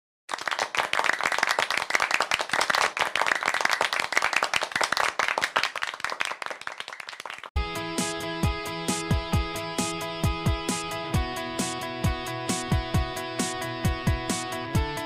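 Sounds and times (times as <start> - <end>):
many hands clapping: 0.3 - 7.6.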